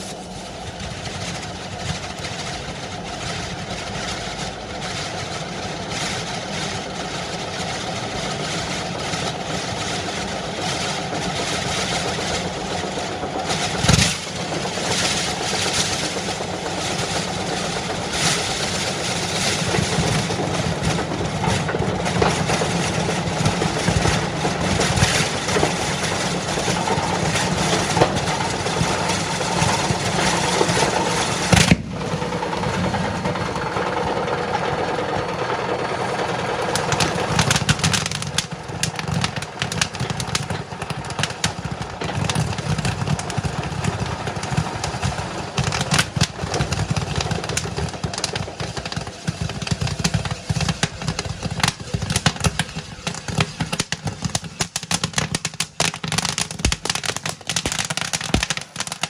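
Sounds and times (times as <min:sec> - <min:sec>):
firework bangs: 0:00.0 - 0:59.0
fireworks crackling hiss: 0:00.0 - 0:59.0
low rumble: 0:14.0 - 0:37.6.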